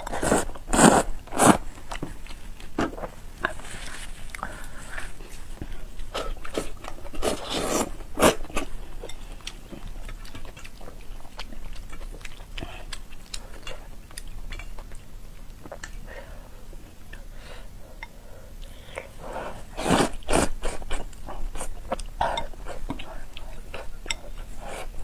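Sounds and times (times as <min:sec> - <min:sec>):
slurping noodles: 0:00.0 - 0:01.6, 0:07.2 - 0:08.4, 0:19.4 - 0:20.8
wet chewing with mouth clicks: 0:01.4 - 0:16.1, 0:18.0 - 0:25.0.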